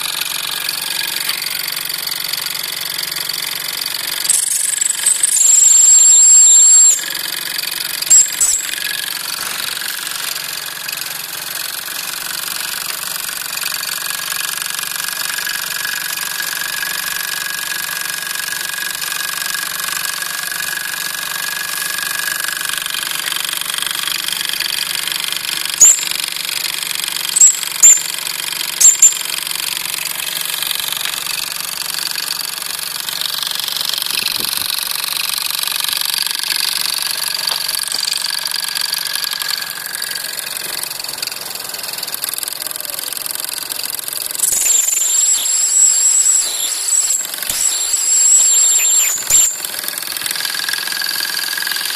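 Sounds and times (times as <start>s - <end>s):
model steam engine chuffing: 0.0s - 47.9s, 49.4s - 51.9s
high squeaks: 4.2s - 7.1s, 8.1s - 8.9s, 25.8s - 26.1s, 27.4s - 28.1s, 28.8s - 29.2s, 44.4s - 49.7s
shrill steam whistle: 5.3s - 7.1s, 44.5s - 49.6s.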